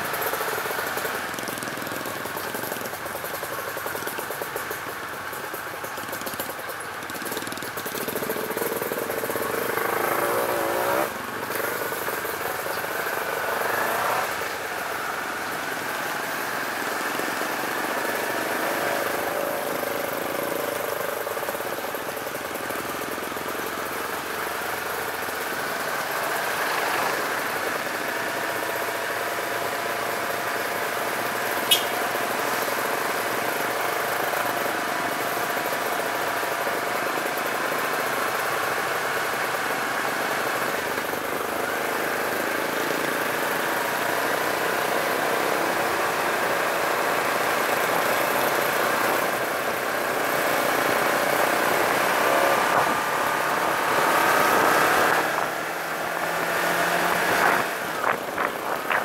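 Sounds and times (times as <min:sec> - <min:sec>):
motorcycle engine running: 0:00.0 - 0:59.0
trucks and bus passing: 0:00.0 - 0:59.0.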